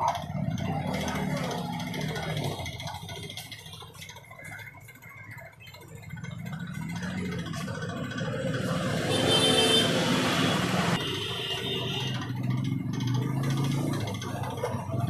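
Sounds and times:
motor vehicle passing: 6.0 - 15.0.

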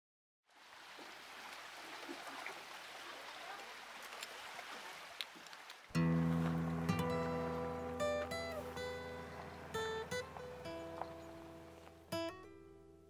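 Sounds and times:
steady rushing water: 0.5 - 11.8
acoustic guitar strumming: 6.0 - 13.0.

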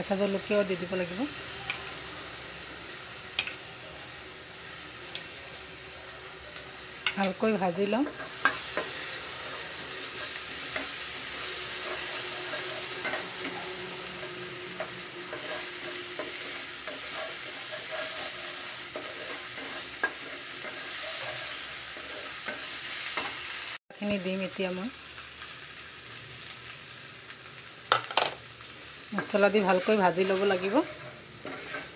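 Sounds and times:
onions sizzling in hot oil: 0.0 - 31.9
wooden spatula scraping pan: 15.3 - 22.7, 29.2 - 31.9.

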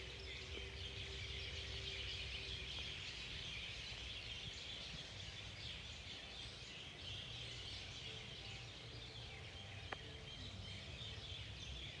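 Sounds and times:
many birds chirping: 0.0 - 12.0.

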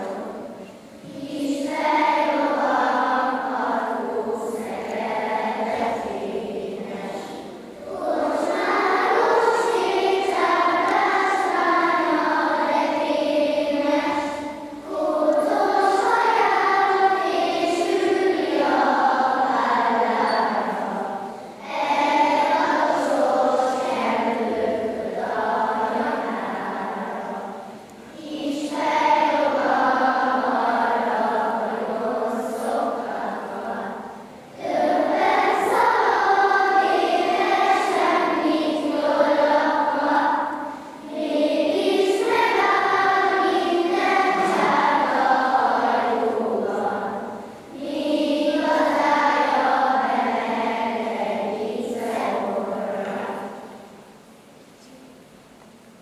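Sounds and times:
children's choir singing: 0.0 - 56.0.

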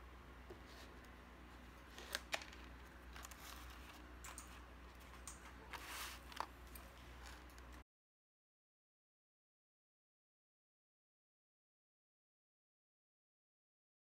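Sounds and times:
low steady hum: 0.0 - 7.8.

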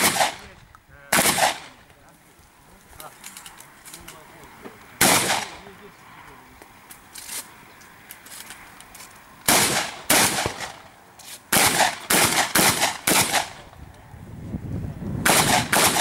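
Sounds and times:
shotgun shots: 0.0 - 1.9, 5.0 - 5.7, 9.5 - 10.9, 11.5 - 13.6, 15.2 - 16.0.

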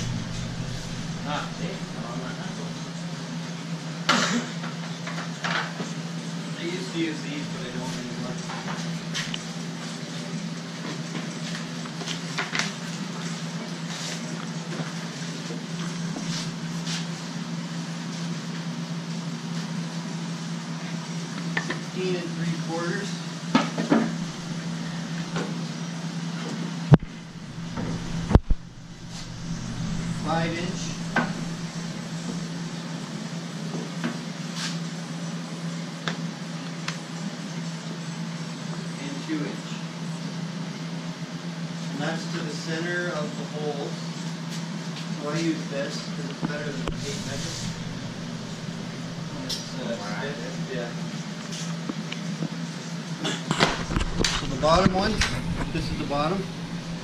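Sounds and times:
workshop machine humming: 0.0 - 4.2, 23.8 - 26.2, 26.8 - 34.1, 46.3 - 57.0.

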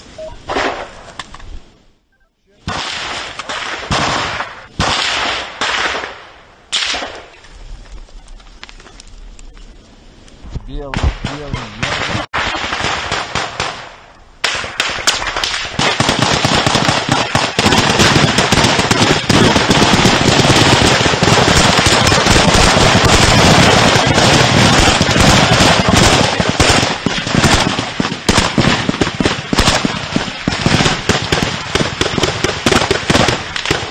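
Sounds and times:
automatic rifle fire: 11.0 - 33.9.

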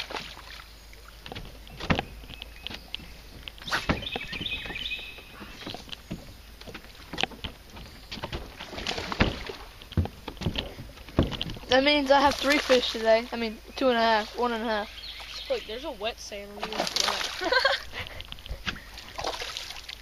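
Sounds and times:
knocks on boat: 1.2 - 12.6.

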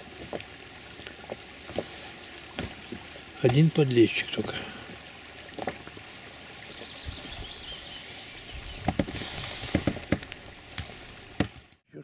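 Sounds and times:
outdoor background on open water: 0.0 - 11.9
soft knocks: 8.8 - 11.6.

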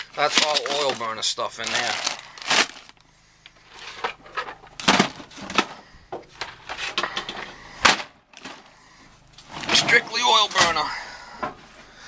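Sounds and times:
boxes shifting in a bin: 0.0 - 3.0, 3.6 - 8.7, 9.4 - 11.9
plastic bags crinkling: 0.0 - 4.1.

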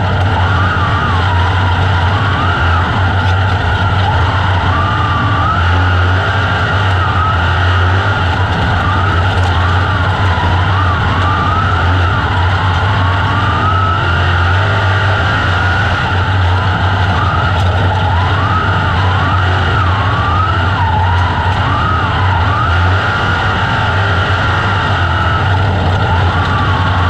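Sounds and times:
race car engine running loud: 0.0 - 27.0.

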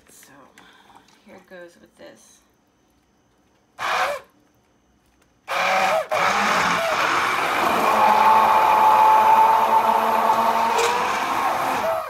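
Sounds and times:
immersion blender whining: 3.8 - 4.2, 5.5 - 12.0.

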